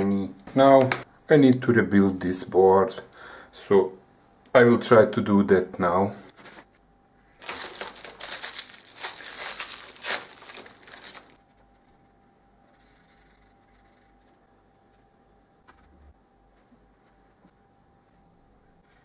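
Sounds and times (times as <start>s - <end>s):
plastic packaging crinkling and tearing: 7.4s - 11.4s.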